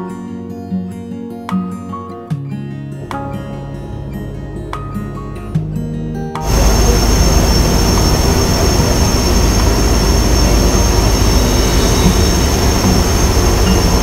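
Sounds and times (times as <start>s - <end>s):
ship engines droning: 6.4s - 14.0s
steady high whine: 6.4s - 14.0s
wind buffeting microphone: 6.4s - 14.0s.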